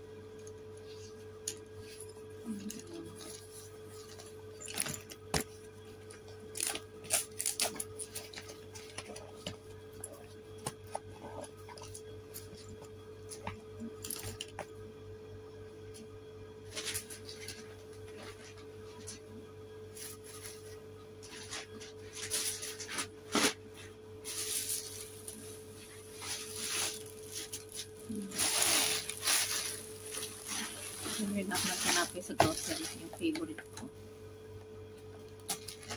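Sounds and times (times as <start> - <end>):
steady hum: 0.0 - 35.9
plastic bags crinkling: 24.2 - 33.7.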